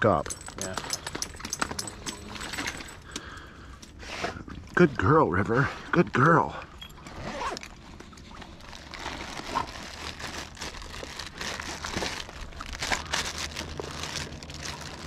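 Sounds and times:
fabric and packaging rustling: 0.0s - 3.1s, 7.0s - 15.0s.

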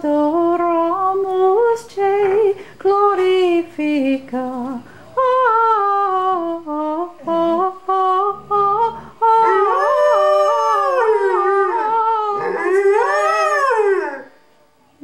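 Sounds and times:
woman singing: 0.0s - 12.8s
dog howling: 8.5s - 14.4s.

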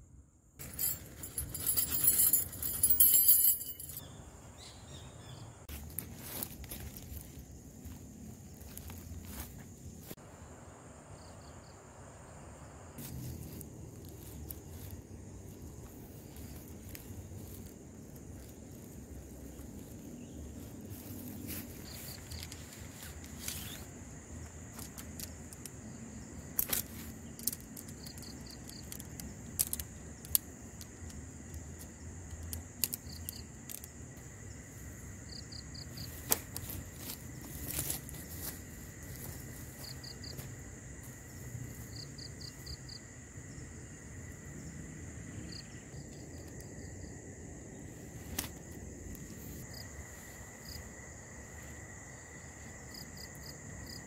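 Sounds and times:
high insect drone: 0.0s - 54.0s
insect pulsed chirps: 6.3s - 54.0s
tent poles clicking: 20.8s - 25.8s, 26.4s - 34.2s, 36.0s - 39.4s, 48.2s - 49.4s.

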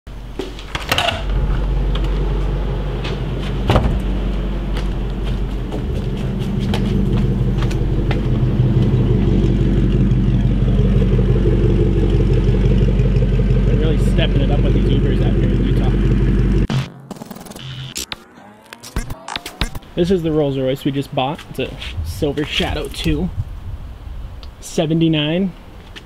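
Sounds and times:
car engine running low: 0.1s - 20.4s.

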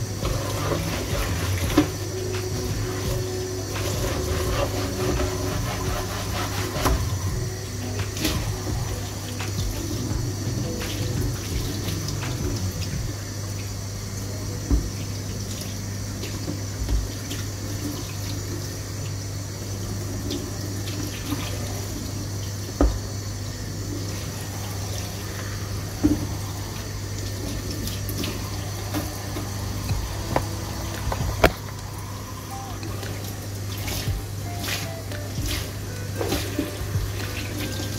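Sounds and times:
cutting board scrubbed under water: 0.2s - 2.0s, 3.7s - 7.4s.

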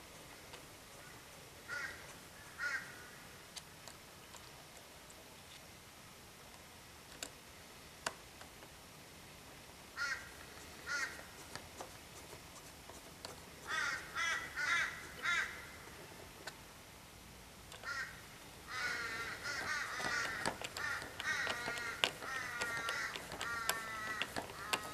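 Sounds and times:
bird cawing: 1.0s - 3.3s, 10.0s - 11.2s, 13.6s - 15.9s, 17.8s - 24.9s
sharp clicks: 19.2s - 24.9s.

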